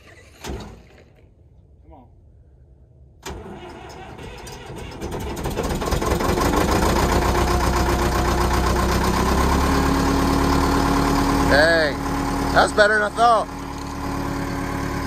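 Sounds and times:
diesel engine cold starting: 0:03.2 - 0:15.0.

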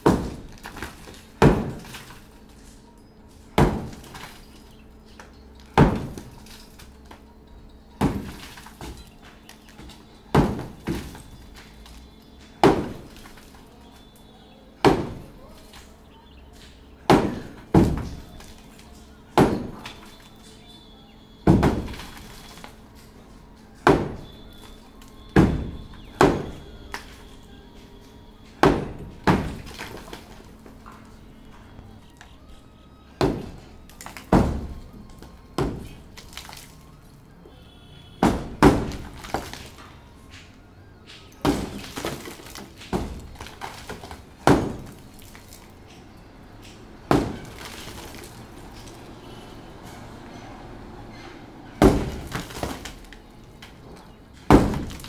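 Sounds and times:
sledgehammer smashing concrete: 0:00.0 - 0:02.3, 0:03.5 - 0:04.7, 0:05.6 - 0:06.9, 0:08.0 - 0:14.0, 0:14.8 - 0:15.9, 0:17.0 - 0:20.7, 0:21.4 - 0:22.8, 0:23.8 - 0:27.4, 0:28.5 - 0:30.6, 0:33.2 - 0:37.0, 0:38.2 - 0:40.4, 0:41.1 - 0:45.7, 0:46.6 - 0:49.0, 0:51.8 - 0:55.0.

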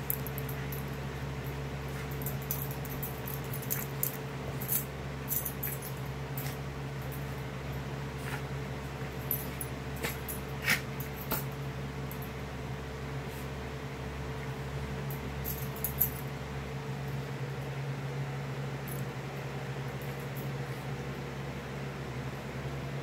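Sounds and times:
steady low hum: 0:00.0 - 0:23.0
dog noises: 0:08.2 - 0:11.5.

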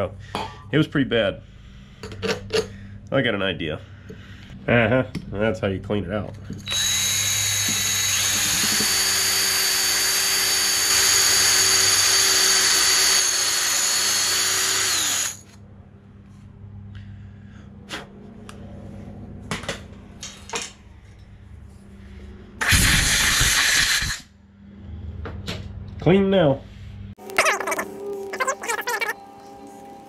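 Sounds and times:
drill with wire brush whining: 0:06.6 - 0:15.6, 0:22.6 - 0:24.3.

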